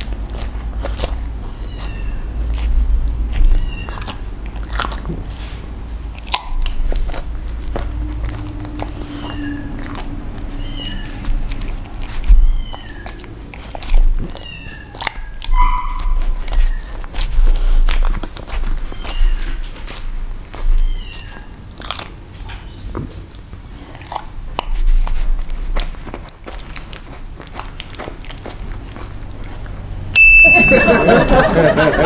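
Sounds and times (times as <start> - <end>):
dog chewing crusty bread: 0.0 - 30.2
short high chirps: 30.2 - 31.4.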